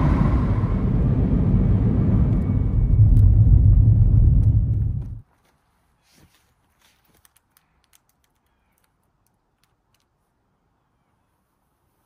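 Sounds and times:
car road and tyre noise: 0:00.0 - 0:05.3.

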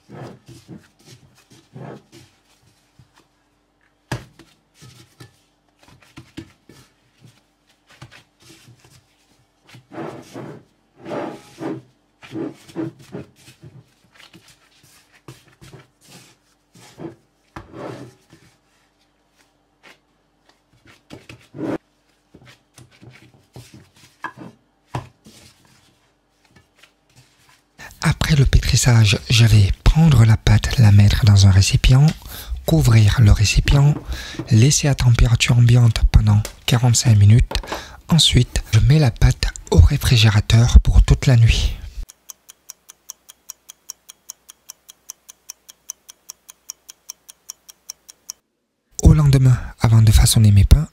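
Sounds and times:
dough squelching: 0:00.0 - 0:10.9, 0:11.5 - 0:48.4
taps against plate: 0:37.5 - 0:37.8.

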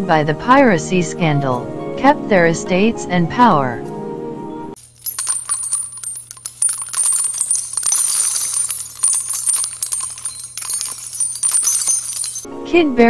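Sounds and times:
coins jingling and clinking: 0:04.8 - 0:12.5.

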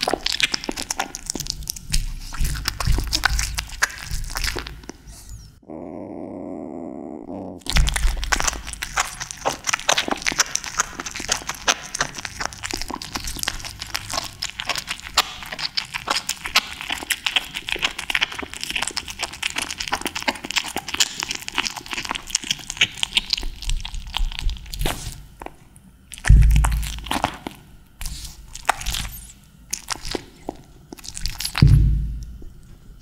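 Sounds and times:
kitten chewing wetly: 0:00.0 - 0:05.1, 0:07.6 - 0:33.0
loud low thump: 0:31.6 - 0:32.4.

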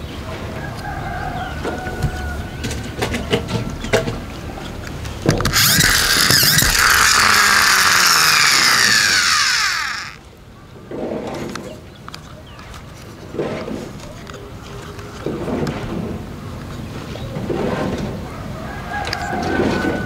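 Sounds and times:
toy truck gears whirring: 0:05.2 - 0:10.2
plastic toy clicks: 0:05.3 - 0:10.2.

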